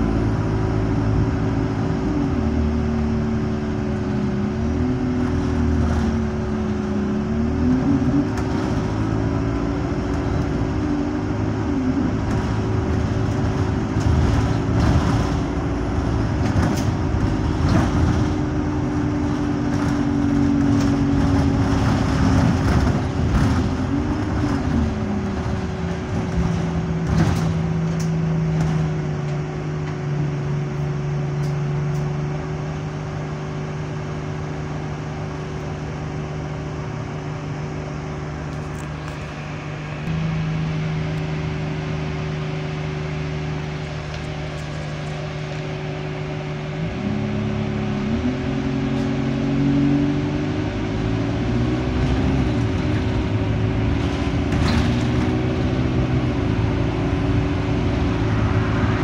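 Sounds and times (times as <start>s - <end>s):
bus diesel engine drone: 0.0s - 59.0s
bus body rattles and knocks: 3.2s - 30.2s, 51.3s - 58.4s
steady high whine: 22.6s - 48.7s.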